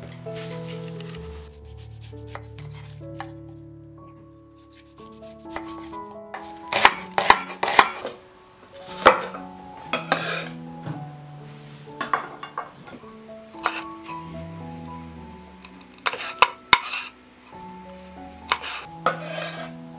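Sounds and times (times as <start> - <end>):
soft background music: 0.0 - 19.9
knife scraping board: 1.6 - 3.3, 4.6 - 6.0, 6.7 - 8.0, 13.6 - 13.9, 15.9 - 17.2, 18.5 - 19.7
knife chopping on wooden board: 6.7 - 8.0, 18.5 - 18.9.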